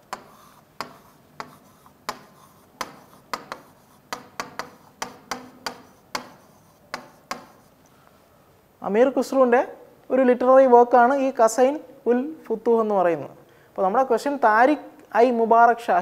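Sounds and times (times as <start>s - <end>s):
pen tapping and scraping on board: 0.0s - 7.8s.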